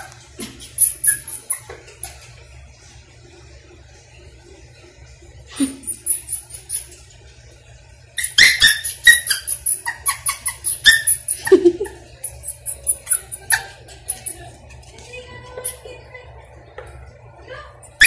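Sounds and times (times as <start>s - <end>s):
dog squeaking: 0.0s - 2.3s, 5.6s - 7.0s, 8.2s - 14.6s
dog claws clicking on tile: 0.0s - 2.5s, 12.2s - 15.8s.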